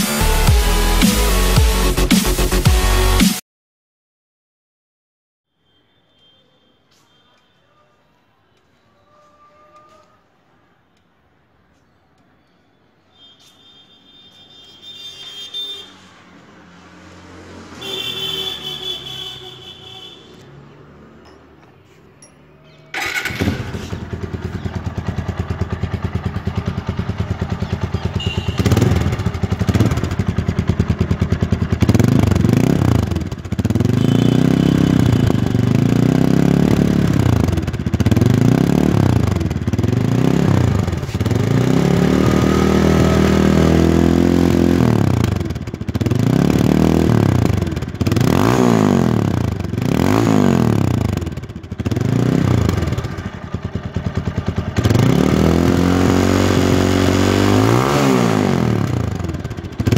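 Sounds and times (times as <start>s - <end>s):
motorcycle engine revving: 16.4s - 21.7s, 22.6s - 59.9s.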